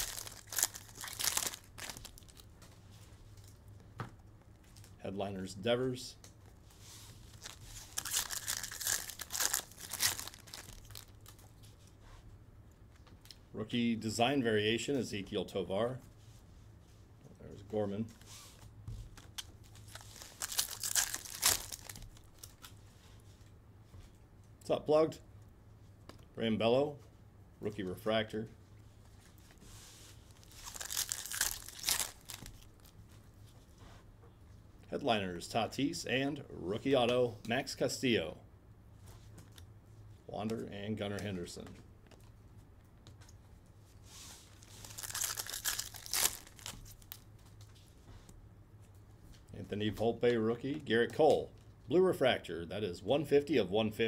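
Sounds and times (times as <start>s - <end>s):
foil wrapper tearing and crinkling: 0.0s - 2.4s, 7.2s - 11.5s, 19.2s - 22.7s, 30.3s - 32.9s, 44.5s - 47.2s.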